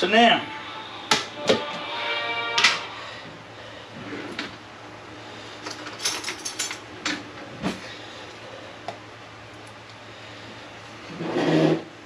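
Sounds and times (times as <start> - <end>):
low hum: 0.0 - 5.7.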